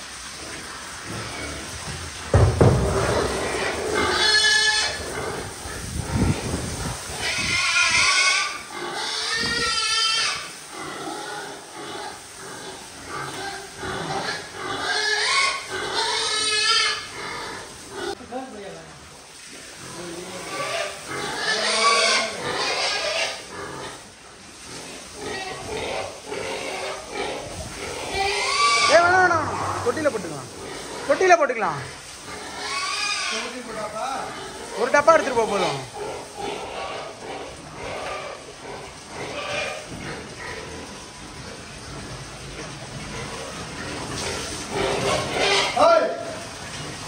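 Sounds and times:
hose spraying water: 0.0s - 47.0s
pigs grunting: 0.3s - 18.2s, 19.7s - 47.0s
pigs squealing: 0.4s - 18.2s, 19.8s - 47.0s.

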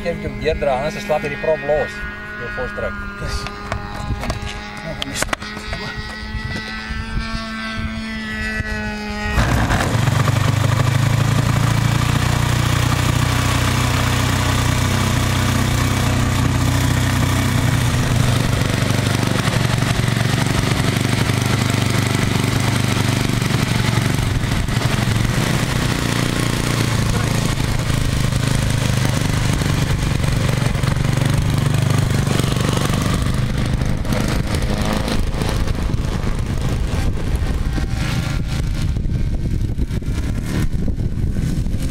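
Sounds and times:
model plane engine running: 0.0s - 41.9s
electric starter: 9.3s - 40.9s.

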